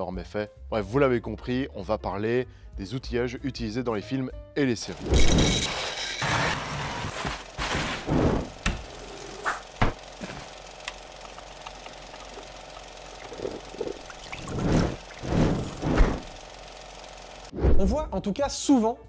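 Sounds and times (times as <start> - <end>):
hand-cranked coffee grinder: 4.9 - 16.4.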